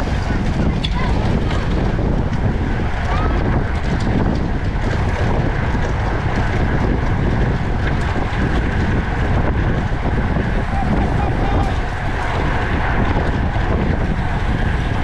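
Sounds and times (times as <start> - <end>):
wind rushing over microphone: 0.0 - 15.0.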